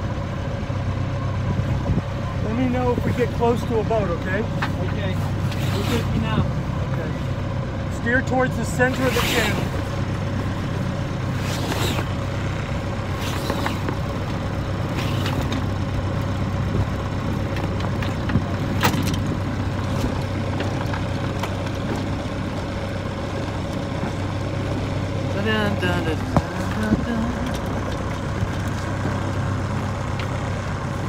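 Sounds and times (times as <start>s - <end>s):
boat engine running: 0.0s - 31.0s.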